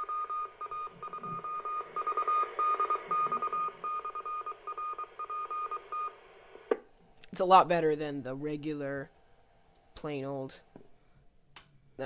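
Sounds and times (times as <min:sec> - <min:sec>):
morse code beeps: 0:00.0 - 0:06.2.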